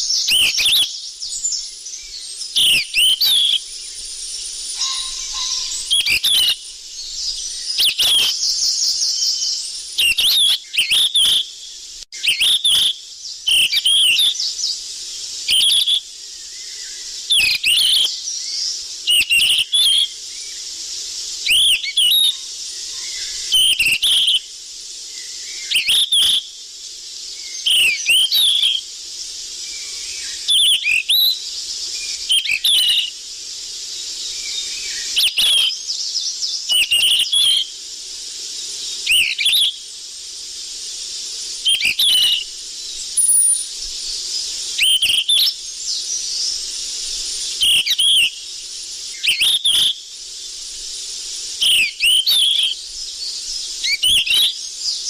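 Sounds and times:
steady high hiss: 0:00.0 - 0:55.0.

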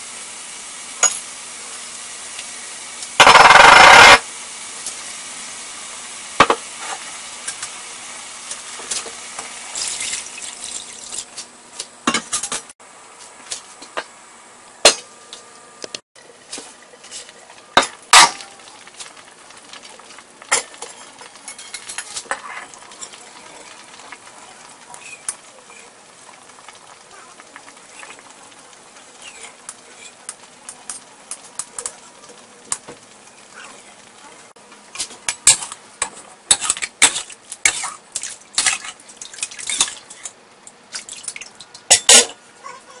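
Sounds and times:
liquid sizzling and simmering in wok: 0:00.0 - 0:43.0
metal utensils clinking on wok: 0:20.5 - 0:23.2.

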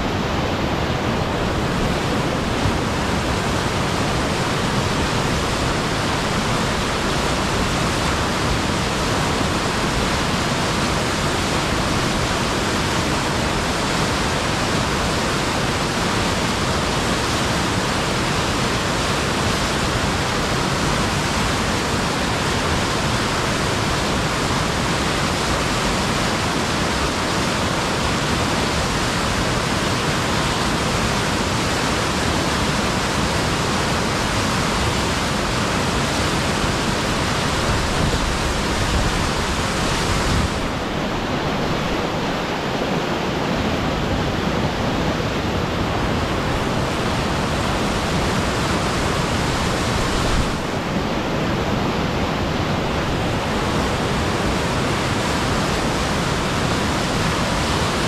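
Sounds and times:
river rapids roaring: 0:00.0 - 0:58.0.

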